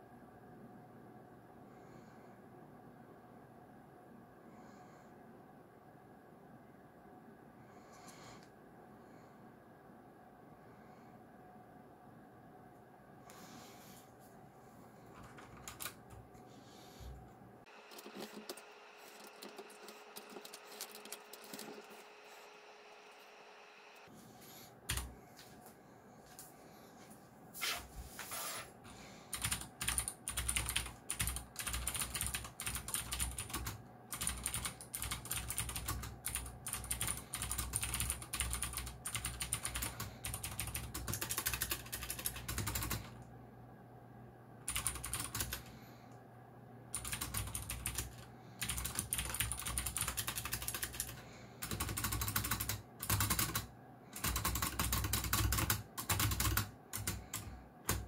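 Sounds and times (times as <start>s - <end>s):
clicky mechanical keyboard typing: 15.2s - 16.2s, 17.8s - 22.2s, 29.3s - 43.2s, 44.7s - 45.7s, 46.9s - 58.0s.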